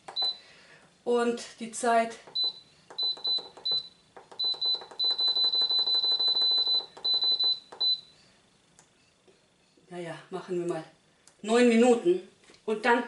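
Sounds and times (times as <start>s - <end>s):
pressure cooker beeping: 2.4s - 8.0s.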